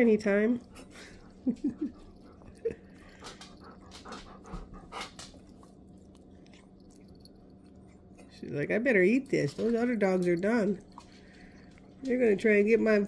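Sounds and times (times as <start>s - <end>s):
puppy chewing and licking: 0.0s - 13.0s
dog noises: 0.6s - 8.3s.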